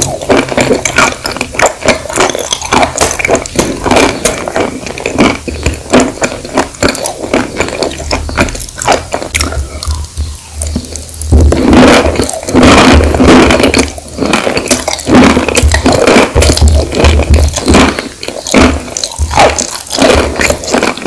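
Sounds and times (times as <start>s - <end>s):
chewing crunchy chalk: 0.0s - 21.0s.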